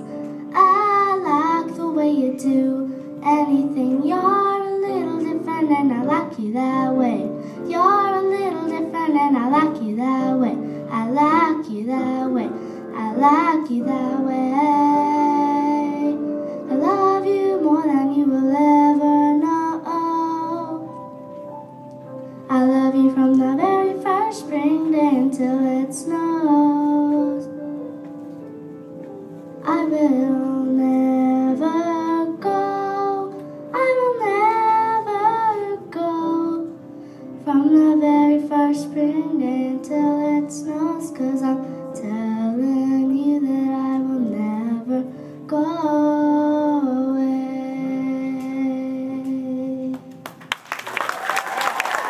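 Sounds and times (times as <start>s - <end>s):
girl singing into microphone: 0.0s - 21.5s, 22.2s - 28.4s, 29.3s - 50.2s
applause: 50.2s - 52.0s.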